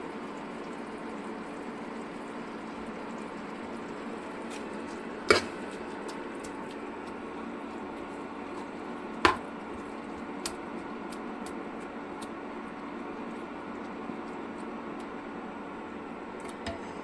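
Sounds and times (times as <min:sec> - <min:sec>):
curry bubbling in pan: 0:00.0 - 0:17.0
metal ladle knocking pan: 0:09.2 - 0:09.4.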